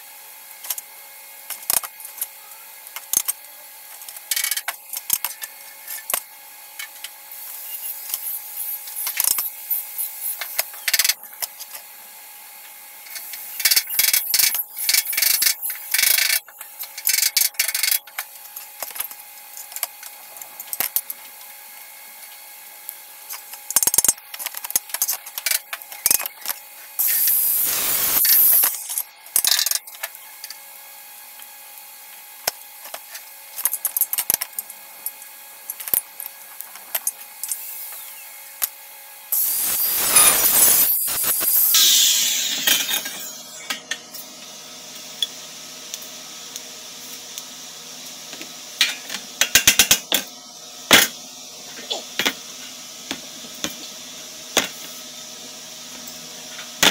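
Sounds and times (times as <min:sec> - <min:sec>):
loud noisy burst: 0:27.0 - 0:28.6, 0:39.4 - 0:43.2
hand tool clicks and scraping: 0:39.4 - 0:44.0.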